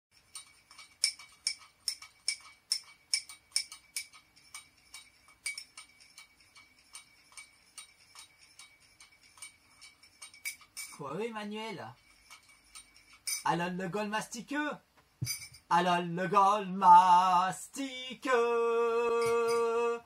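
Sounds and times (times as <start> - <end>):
teaspoon clinking in cup: 0.2 - 11.0, 11.9 - 13.5, 19.2 - 19.9.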